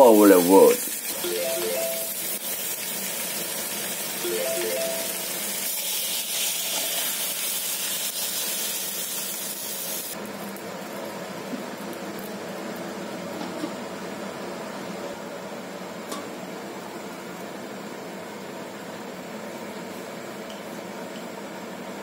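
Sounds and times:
water hissing on hot pan: 0.0s - 1.2s, 2.2s - 4.2s, 5.4s - 10.2s
few-note chime: 1.2s - 2.3s, 4.2s - 5.3s
fish sizzling in hot oil: 2.2s - 4.2s, 5.1s - 12.4s.

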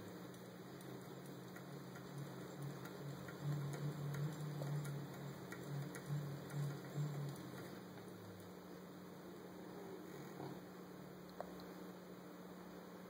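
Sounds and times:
light even ticking: 0.0s - 8.6s
low mechanical hum: 0.0s - 13.0s.

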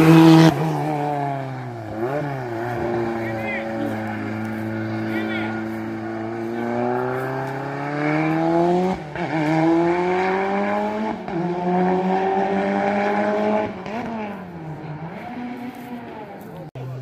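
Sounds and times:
race car engine accelerating: 0.0s - 17.0s.

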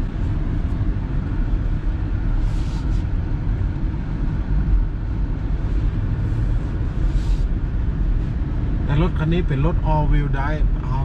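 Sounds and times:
engine and tyres rumbling: 0.0s - 11.0s
brief hiss: 2.4s - 3.1s.

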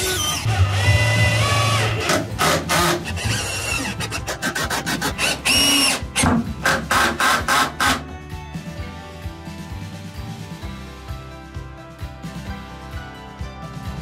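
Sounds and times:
sandpaper rubbing: 3.4s - 5.5s.

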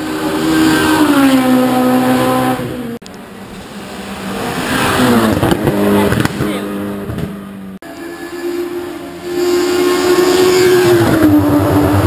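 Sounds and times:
race cars passing at full throttle: 0.0s - 12.0s.

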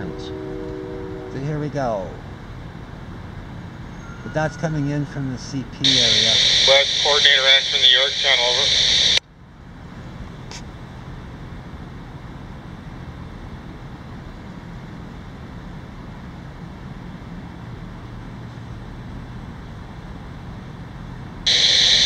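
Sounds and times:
faint hum: 4.3s - 16.7s, 21.5s - 22.0s
low background rumble: 5.3s - 22.0s.

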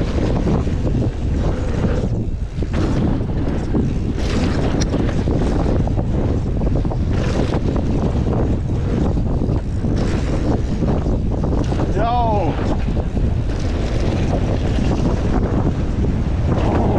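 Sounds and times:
bike knocks and rattles: 0.0s - 16.9s
tyres rumbling on dirt: 0.0s - 16.9s
wind buffeting microphone: 0.0s - 16.9s.

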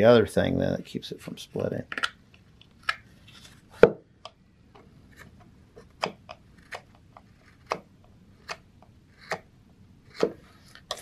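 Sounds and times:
carving knife slicing wood: 5.1s - 11.0s.

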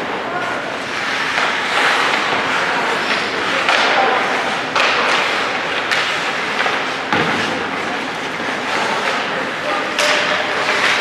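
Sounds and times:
skates scraping ice: 0.0s - 11.0s
sticks and puck knocking on ice: 1.1s - 7.8s.

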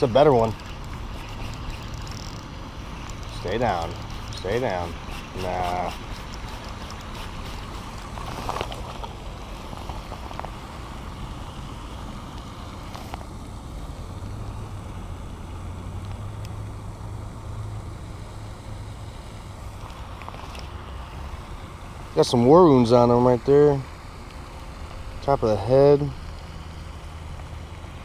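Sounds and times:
light clicks of handling tackle: 0.4s - 4.2s.

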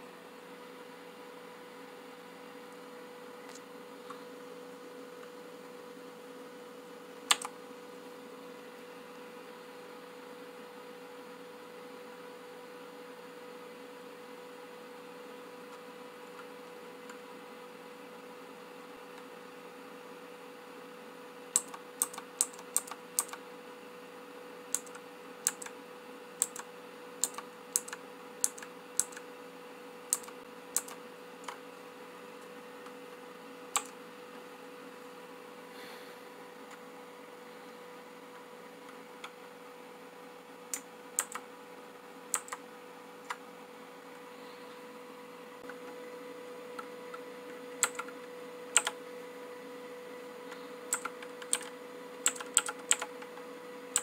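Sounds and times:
faint steady hum: 0.0s - 54.0s
clicky keyboard keys: 7.3s - 7.5s, 21.6s - 23.4s, 24.7s - 25.7s, 26.4s - 29.2s, 30.1s - 31.6s, 33.7s - 33.9s, 40.7s - 41.4s, 42.3s - 42.6s, 47.8s - 48.1s, 48.8s - 49.0s, 50.9s - 53.2s.

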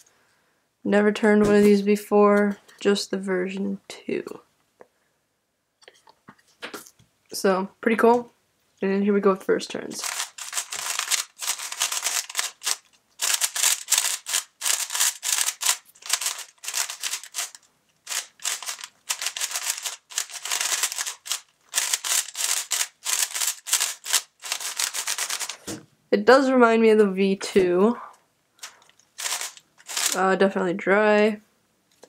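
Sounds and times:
puzzle cube plastic clicks: 10.0s - 25.7s, 28.6s - 30.2s.

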